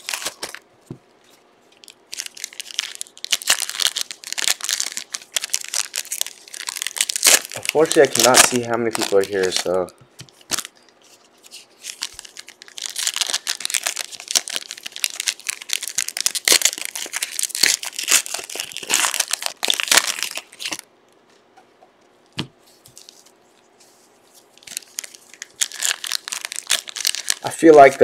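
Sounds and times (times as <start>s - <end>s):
card pack wrappers tearing: 0.0s - 0.6s, 1.8s - 10.7s, 11.4s - 20.8s, 24.6s - 28.0s.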